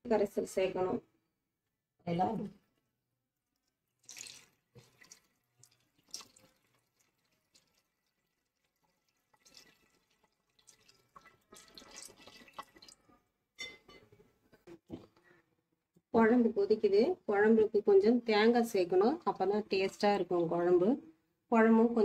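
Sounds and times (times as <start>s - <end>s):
juice trickling and dripping: 3.4s - 13.3s
small splashes: 3.6s - 13.1s.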